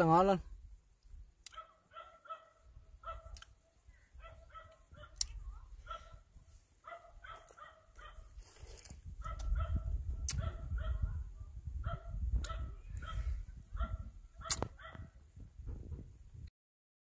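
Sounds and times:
dog yapping: 0:01.5 - 0:03.3, 0:06.9 - 0:08.2
low rumble on microphone: 0:02.7 - 0:16.5.

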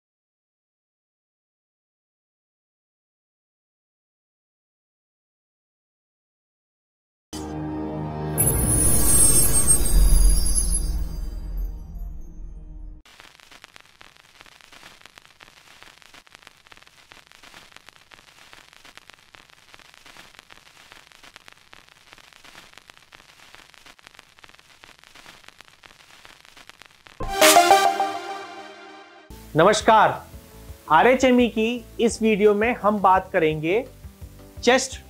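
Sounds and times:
music: 0:07.4 - 0:13.0, 0:27.2 - 0:35.0
crackling static hiss: 0:13.1 - 0:35.0
loud musical sting: 0:27.2 - 0:29.3.

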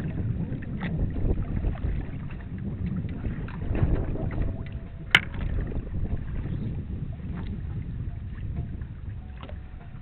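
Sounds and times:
water rushing along hull: 0:00.0 - 0:10.0
wind buffeting microphone: 0:00.0 - 0:10.0.

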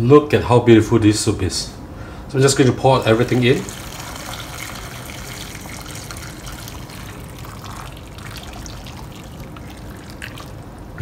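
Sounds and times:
soup pouring into pot: 0:02.8 - 0:11.0.

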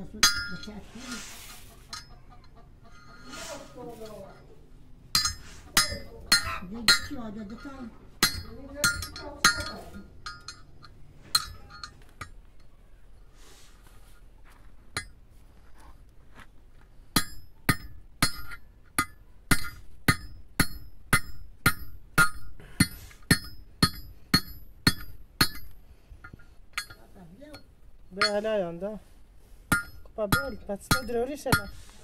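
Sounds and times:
hammer striking steel ringing: 0:00.1 - 0:00.8, 0:05.1 - 0:07.6, 0:08.2 - 0:10.7, 0:11.3 - 0:12.0, 0:17.2 - 0:25.7, 0:29.7 - 0:31.8.

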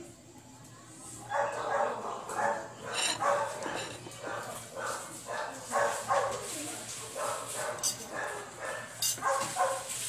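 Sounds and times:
dog barking: 0:01.3 - 0:03.6, 0:04.2 - 0:06.5, 0:07.1 - 0:09.9.

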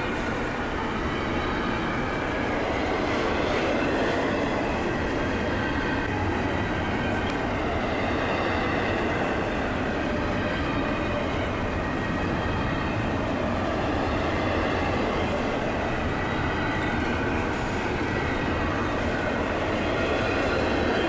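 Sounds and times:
freight train wheels rumbling: 0:00.0 - 0:21.0.

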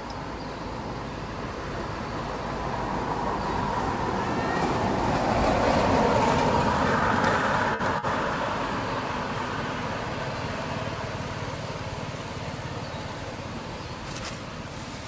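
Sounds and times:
vehicle passing on road: 0:00.0 - 0:15.0.

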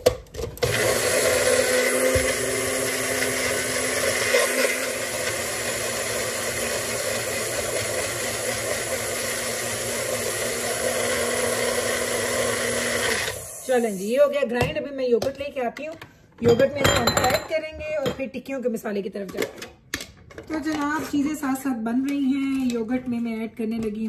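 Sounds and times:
blender motor grinding: 0:00.4 - 0:13.8.

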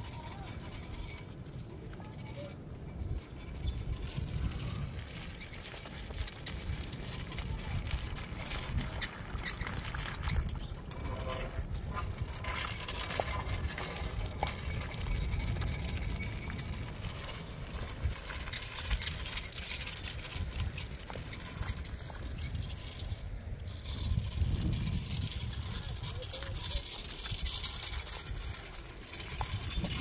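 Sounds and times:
stone roller rumbling on earth: 0:00.0 - 0:30.0.

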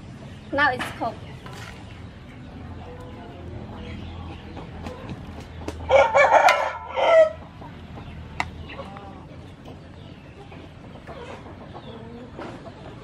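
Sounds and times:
rooster crowing: 0:05.9 - 0:07.4.

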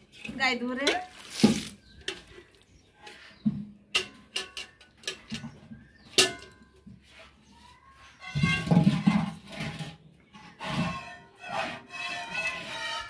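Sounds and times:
metal pail clinking and knocking: 0:00.2 - 0:02.3, 0:03.5 - 0:06.8, 0:08.3 - 0:10.0.

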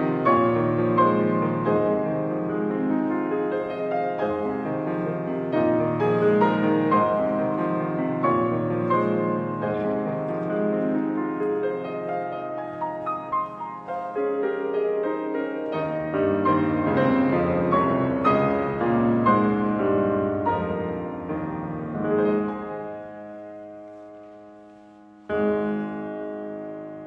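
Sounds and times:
slow solo piano piece: 0:00.0 - 0:27.0.

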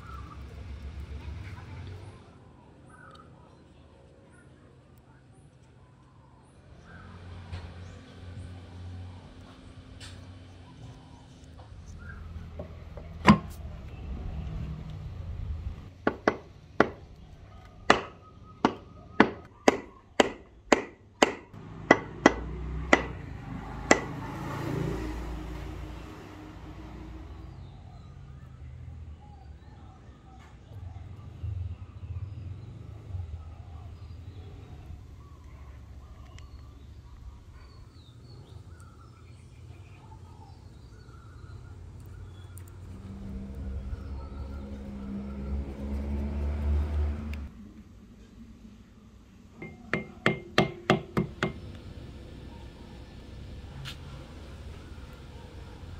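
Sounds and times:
faint birds chirping: 0:00.0 - 0:21.8, 0:23.1 - 0:55.9.

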